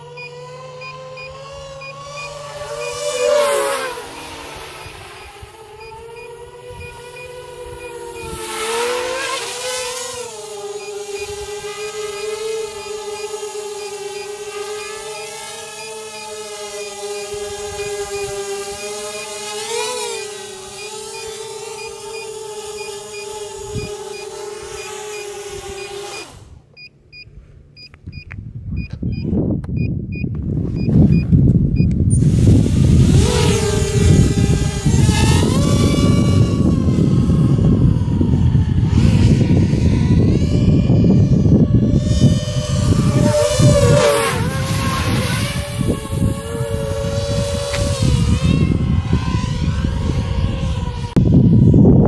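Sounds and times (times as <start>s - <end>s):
drone propellers whining: 0.0s - 28.2s, 30.1s - 52.0s
short electronic beeps: 0.2s - 3.0s, 5.8s - 8.4s, 10.8s - 31.9s.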